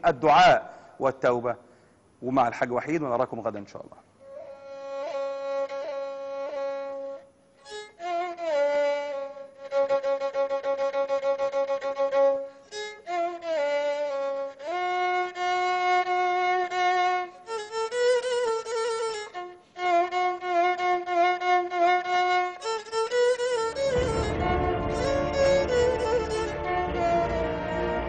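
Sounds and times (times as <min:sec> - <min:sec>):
bowed fiddle solo melody: 0:04.2 - 0:28.0.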